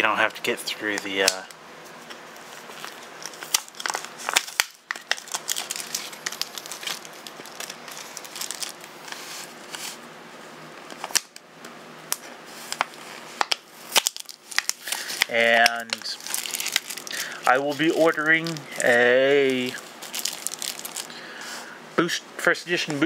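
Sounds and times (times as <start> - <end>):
plastic packaging crinkling: 1.2 - 10.0, 12.6 - 21.6.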